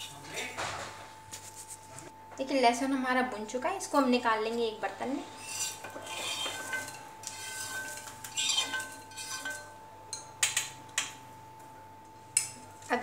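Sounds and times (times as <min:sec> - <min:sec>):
metal utensil scraping a pan: 0:05.4 - 0:09.8.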